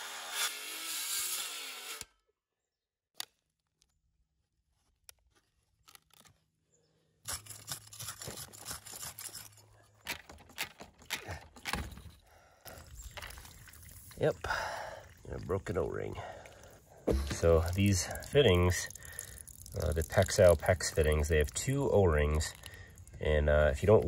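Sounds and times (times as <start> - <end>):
scraping and crunching of gravel: 7.2 - 12.1, 17.1 - 24.0.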